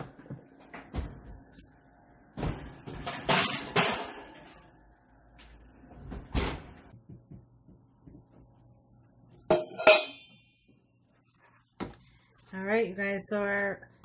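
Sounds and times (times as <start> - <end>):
metal pan and tongs clanking: 9.5 - 10.4.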